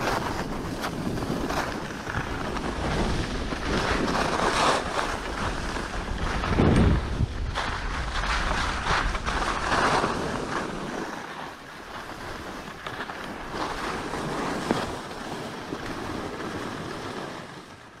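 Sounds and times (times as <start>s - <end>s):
wind on microphone: 0.0s - 17.8s
skis scraping over snow: 0.0s - 18.0s.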